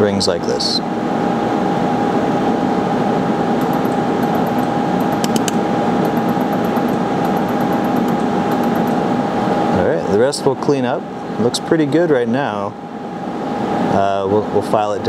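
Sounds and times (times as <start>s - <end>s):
laser welder fan rush and hum: 0.0s - 15.0s
sharp clicks: 3.6s - 9.0s.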